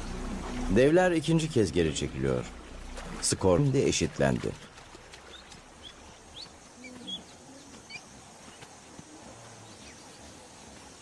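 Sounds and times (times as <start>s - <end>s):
faint low animal calls: 6.4s - 10.4s.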